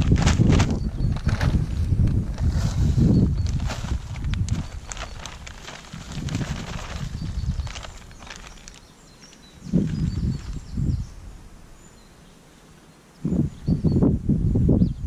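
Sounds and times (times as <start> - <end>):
compost pouring from plastic bag: 0.0 - 8.9.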